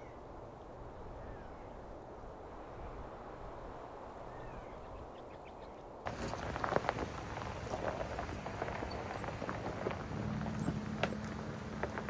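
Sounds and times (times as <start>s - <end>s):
tyres crunching over gravel: 6.1s - 12.0s.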